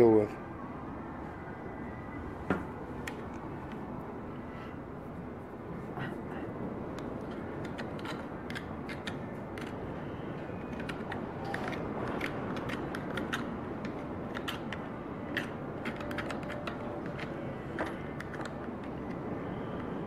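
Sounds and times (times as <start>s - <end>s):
low background noise: 0.0s - 20.0s
knife scraping on bone: 7.6s - 9.8s.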